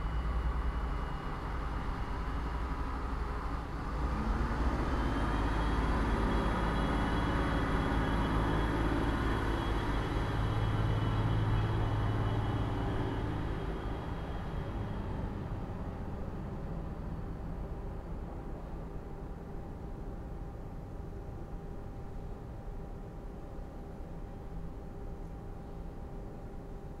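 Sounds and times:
rising whine: 0.0 - 17.2
factory machinery hum: 0.0 - 27.0
train rumble: 0.0 - 27.0.

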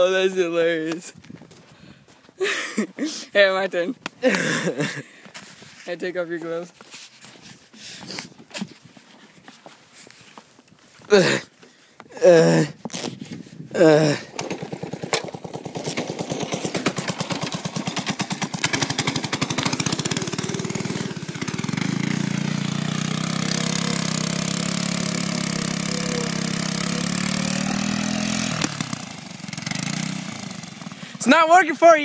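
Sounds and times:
go-kart engine running: 13.8 - 31.3.

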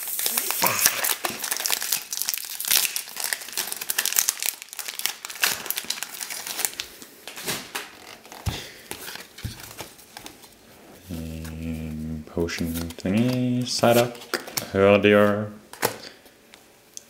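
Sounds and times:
foil wrapper crinkling and tearing: 0.0 - 10.4
cards rustling: 0.0 - 16.3.

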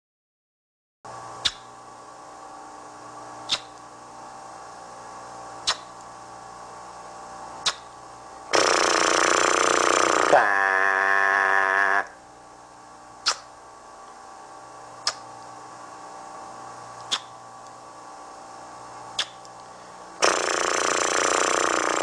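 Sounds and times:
steady hum: 1.1 - 22.0
sharp clicks: 3.5 - 3.8, 5.6 - 5.9, 15.0 - 15.2, 17.0 - 17.8, 19.2 - 22.0.

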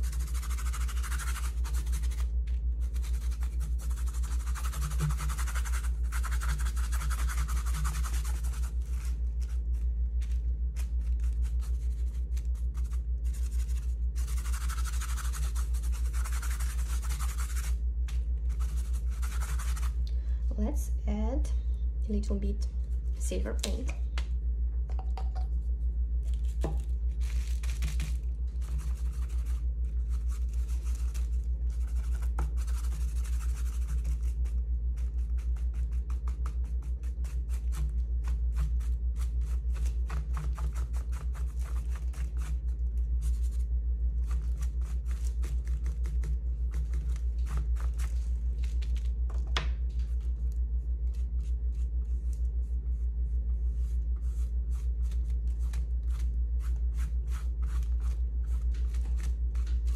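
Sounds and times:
painting tool scraping paint: 0.0 - 9.9
steady low hum: 0.0 - 59.9.

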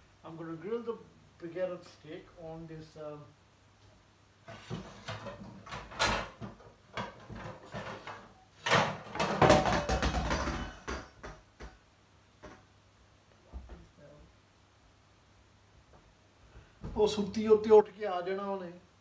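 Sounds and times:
pans rattling clatter: 4.5 - 11.1.

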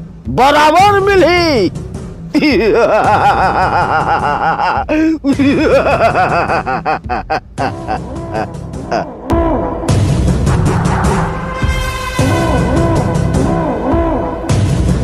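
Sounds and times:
man laughing theatrically: 2.3 - 9.8.

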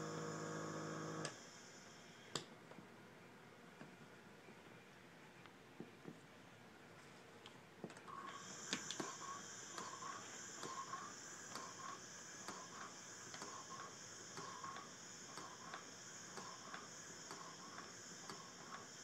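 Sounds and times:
faint regular clicking: 7.4 - 18.9
nebulizer hissing: 8.1 - 19.0.

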